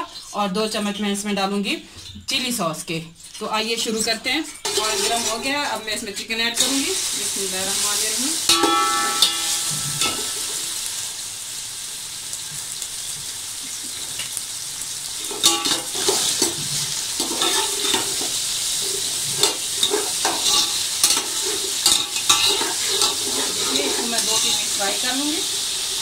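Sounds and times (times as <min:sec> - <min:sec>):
metal spatula scraping a pot: 0:04.5 - 0:06.0, 0:08.5 - 0:10.8, 0:15.2 - 0:26.0
chicken sizzling in hot oil: 0:04.6 - 0:26.0.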